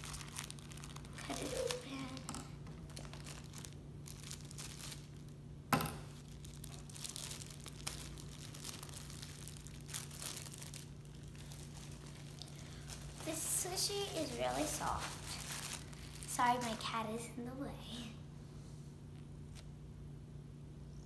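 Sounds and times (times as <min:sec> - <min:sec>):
plastic packaging crinkling and tearing: 0:00.0 - 0:05.4, 0:06.1 - 0:17.3.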